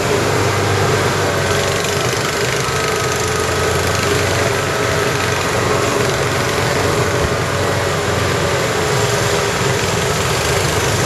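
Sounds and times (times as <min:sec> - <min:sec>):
off-road buggy engine running: 0:00.0 - 0:11.0.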